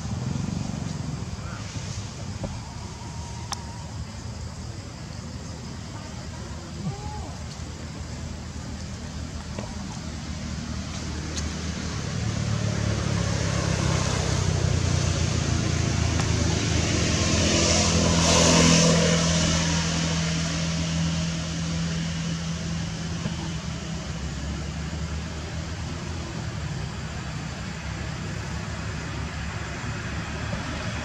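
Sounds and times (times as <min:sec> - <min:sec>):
vehicle engine passing by: 0:09.8 - 0:31.0.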